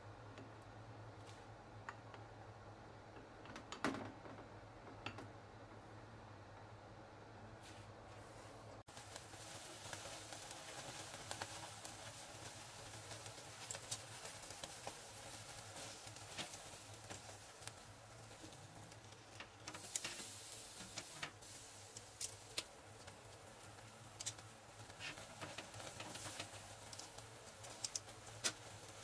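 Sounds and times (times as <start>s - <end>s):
fish fillet sizzling on grill: 8.8s - 29.0s.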